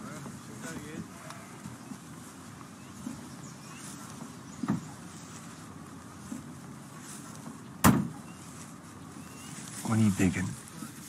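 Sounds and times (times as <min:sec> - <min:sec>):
soft thud: 0:07.8 - 0:08.2
car door slamming: 0:07.8 - 0:08.3.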